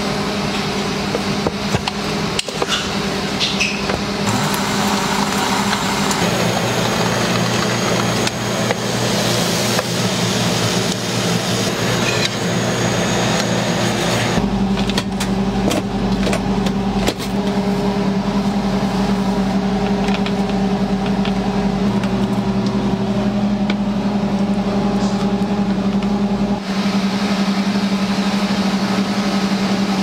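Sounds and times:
mechanical hum: 0.0 - 30.0.

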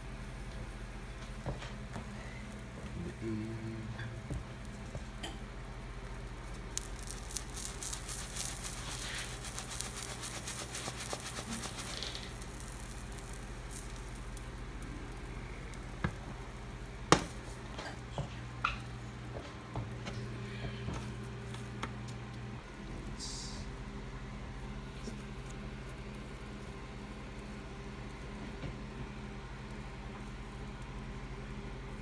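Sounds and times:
omelet sizzling in pan: 3.9 - 18.2.

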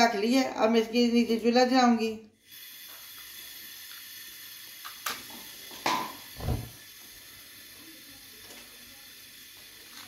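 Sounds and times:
gas burst: 2.4 - 7.6.

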